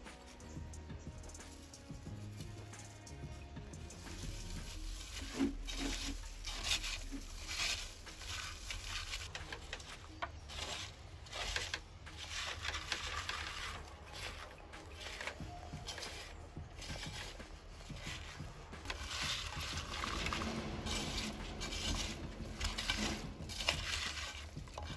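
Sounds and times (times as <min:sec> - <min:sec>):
fruit rustling in clay pot: 0:03.7 - 0:24.9.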